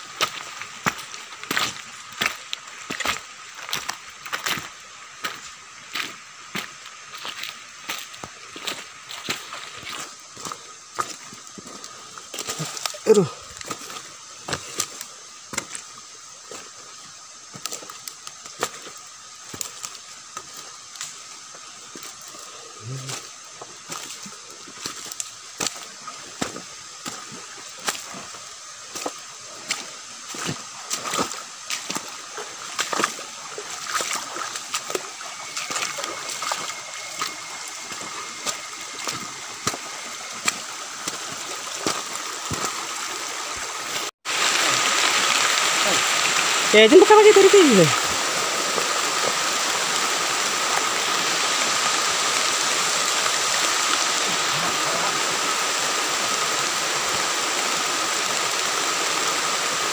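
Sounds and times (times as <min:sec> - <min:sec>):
footsteps wading through water: 0:00.1 - 0:15.9, 0:23.1 - 0:44.3.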